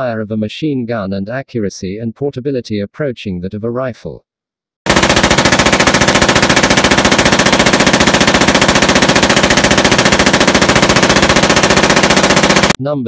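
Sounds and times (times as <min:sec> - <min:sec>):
machine gun automatic fire: 0:04.9 - 0:12.8.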